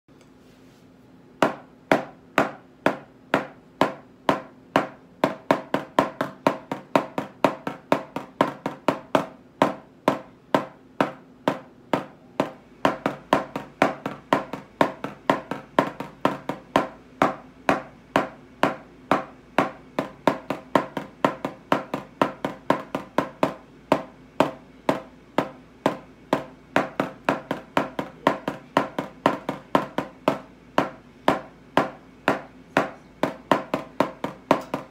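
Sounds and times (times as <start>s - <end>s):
drumsticks tapping a practice pad: 1.4s - 34.9s.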